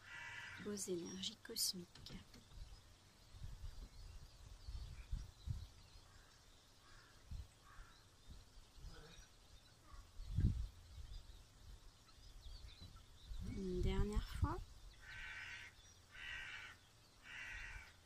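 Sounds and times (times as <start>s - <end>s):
faint bird calls: 0.0s - 2.7s, 4.7s - 10.6s, 14.9s - 18.0s.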